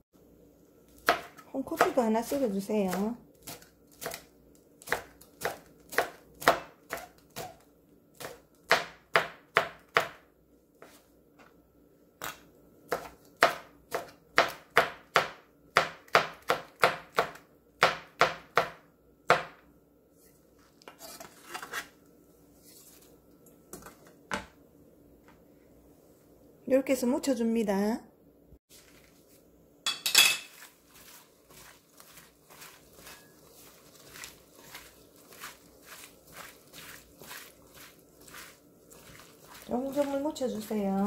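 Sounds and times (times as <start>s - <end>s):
knife chopping on cutting board: 1.0s - 7.6s, 8.2s - 10.2s, 12.9s - 19.6s
knife scraping board: 20.9s - 22.0s, 30.4s - 39.6s.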